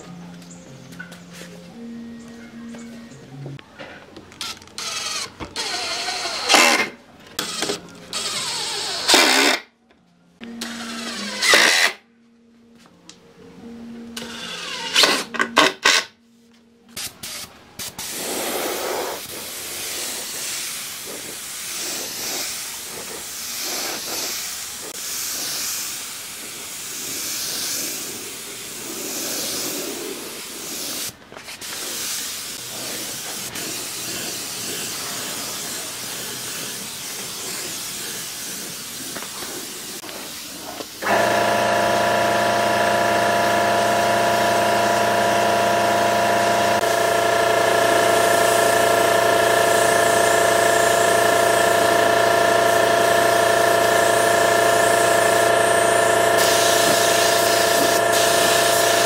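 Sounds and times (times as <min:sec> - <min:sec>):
impact driver driving screws: 0:04.4 - 0:09.6, 0:10.6 - 0:12.0, 0:14.2 - 0:16.1
spray gun hissing: 0:17.0 - 0:59.0.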